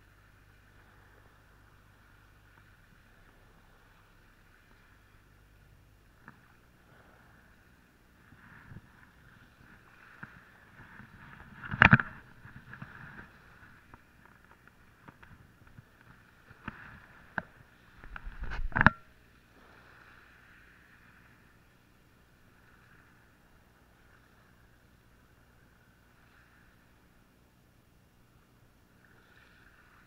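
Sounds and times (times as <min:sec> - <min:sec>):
rod and reel handling noise: 0:08.2 - 0:19.2.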